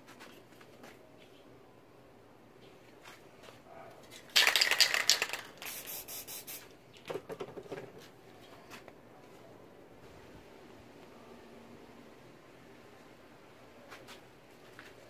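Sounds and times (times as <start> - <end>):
spray paint hissing: 4.4 - 6.7.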